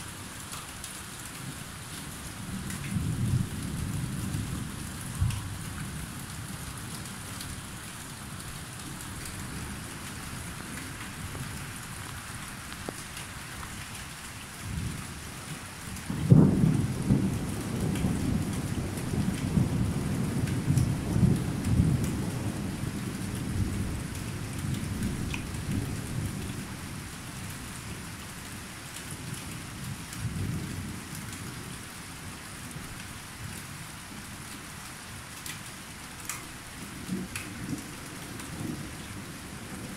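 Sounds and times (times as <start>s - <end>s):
steady rain: 0.0s - 39.9s
thunder rumbling: 16.1s - 24.0s.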